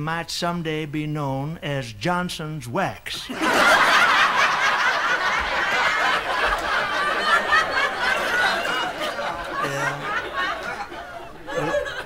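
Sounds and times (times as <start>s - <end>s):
audience laughing: 3.3s - 12.0s.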